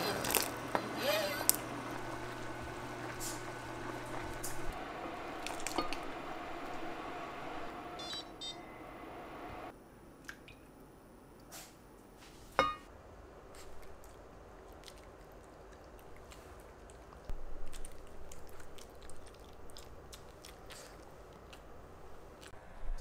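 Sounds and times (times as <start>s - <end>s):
pot boiling: 0.0s - 9.7s.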